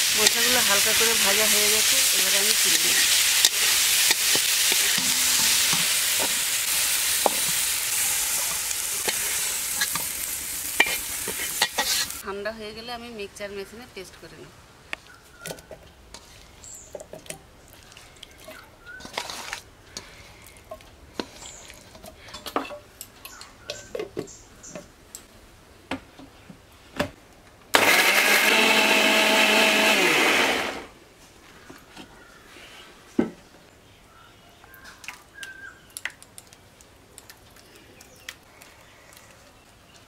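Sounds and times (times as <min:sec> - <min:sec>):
mixer grinder motor whine: 0:27.8 - 0:30.9.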